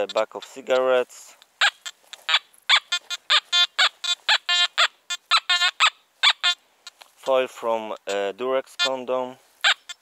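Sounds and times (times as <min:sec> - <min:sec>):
metal detector buzzy beeps: 0:01.6 - 0:06.6, 0:08.0 - 0:10.0.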